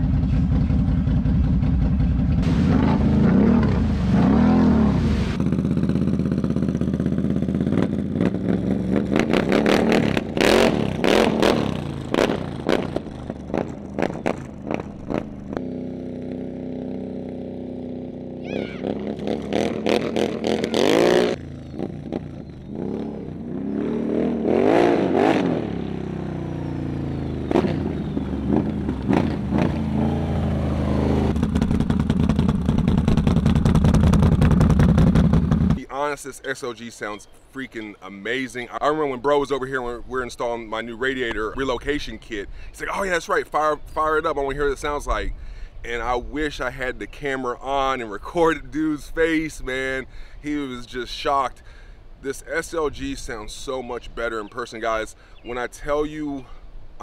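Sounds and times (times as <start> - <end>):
atv engine revving and idling: 0.0 - 35.9.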